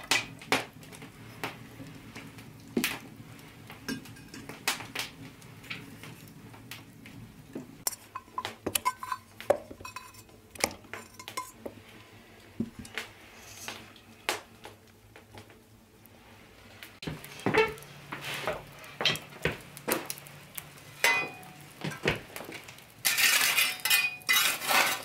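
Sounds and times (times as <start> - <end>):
metal dishes clinking against pot: 7.9 - 11.7, 21.0 - 22.0, 23.0 - 25.0
butter scraped into pot: 23.0 - 25.0.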